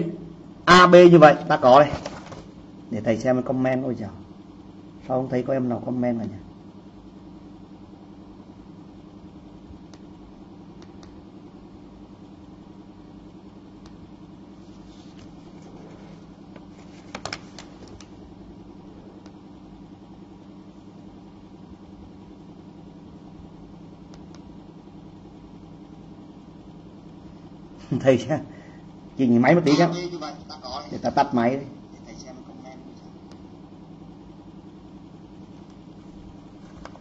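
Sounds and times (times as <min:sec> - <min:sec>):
low hum of equipment: 0:00.0 - 0:37.0
clicks: 0:09.8 - 0:10.2, 0:24.0 - 0:24.5.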